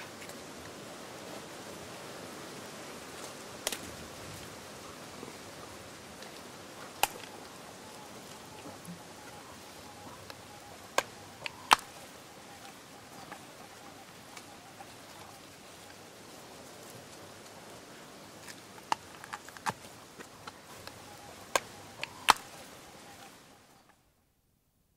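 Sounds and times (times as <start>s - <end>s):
faint steady background noise: 0.0s - 24.9s
sharp cracks and clicks: 7.0s - 7.4s, 11.0s - 12.0s, 18.8s - 22.5s.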